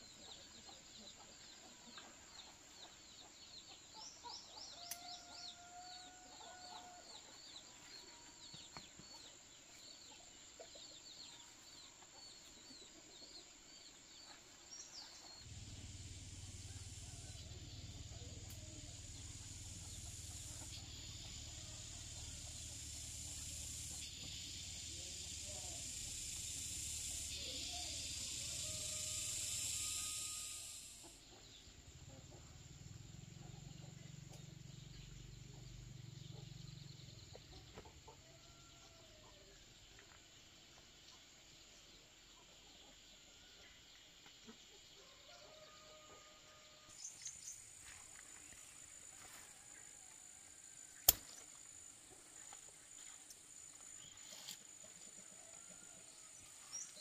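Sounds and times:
steady high hiss: 14.7s - 31.6s, 46.8s - 57.0s
sharp click: 51.0s - 51.4s.

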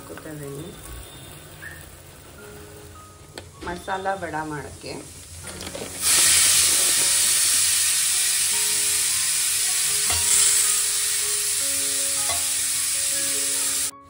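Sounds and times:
soft background music: 0.0s - 14.0s
grains poured into metal bowl: 5.5s - 13.7s.

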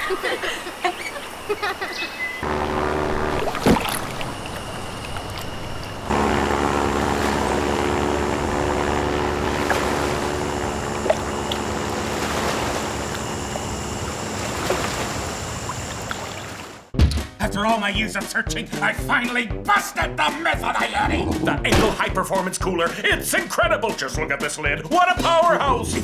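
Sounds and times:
propeller plane droning: 0.0s - 16.9s.

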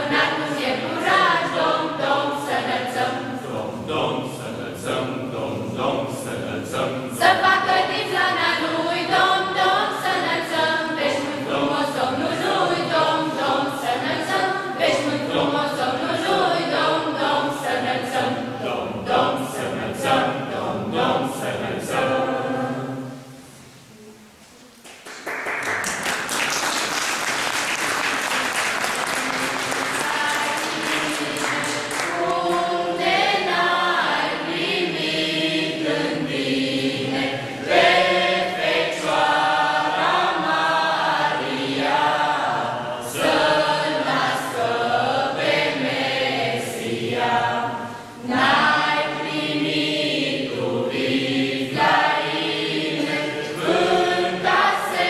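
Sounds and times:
young voices singing a carol: 0.0s - 24.6s, 28.2s - 55.0s
audience applauding: 24.8s - 32.7s.

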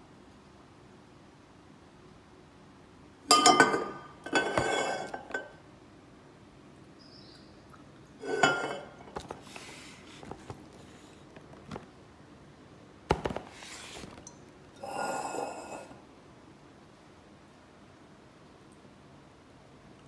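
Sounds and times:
glass bottles clinking: 3.3s - 5.6s, 8.2s - 9.2s.

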